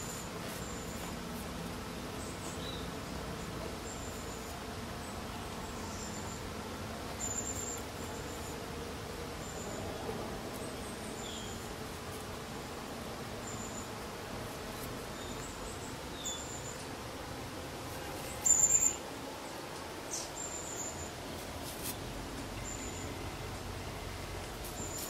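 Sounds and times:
steady background hiss: 0:00.0 - 0:25.0
small birds chirping: 0:02.1 - 0:08.8, 0:09.4 - 0:12.5, 0:14.6 - 0:17.0, 0:17.8 - 0:25.0.

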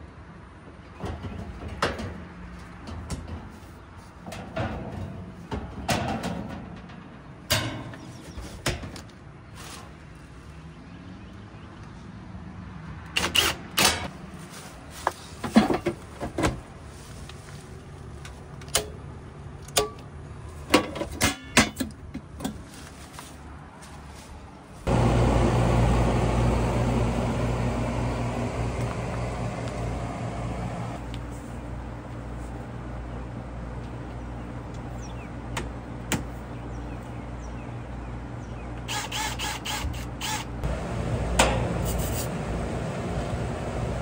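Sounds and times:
heat pump humming: 0:24.9 - 0:36.2, 0:38.8 - 0:44.0.

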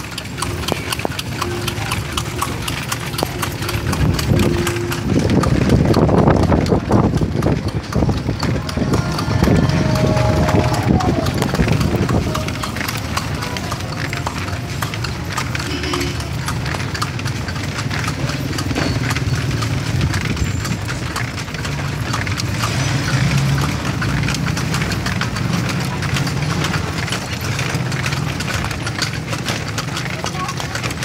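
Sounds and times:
horse hooves clip-clopping: 0:00.0 - 0:31.0
steady low rumble: 0:02.0 - 0:14.0.

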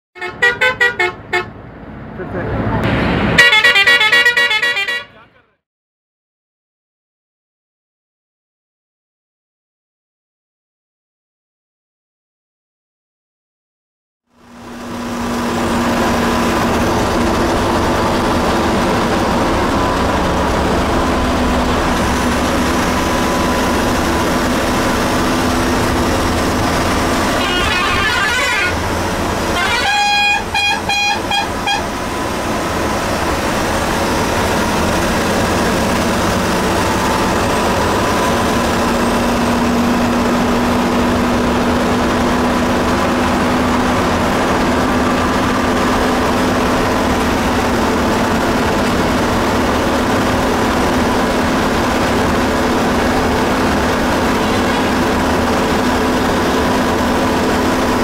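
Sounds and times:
vehicle horn short toots: 0:00.2 - 0:01.5, 0:03.4 - 0:05.4, 0:27.3 - 0:28.8, 0:29.5 - 0:31.9, 0:54.4 - 0:55.0
bus engine and road noise: 0:00.2 - 0:05.6, 0:14.3 - 0:58.0
engine drone: 0:00.2 - 0:05.6, 0:14.3 - 0:58.0.

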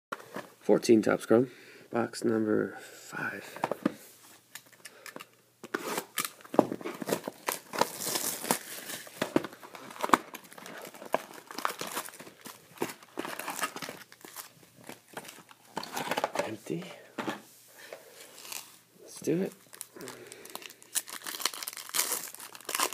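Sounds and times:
foil packs crinkling: 0:06.0 - 0:16.6, 0:19.3 - 0:22.9.

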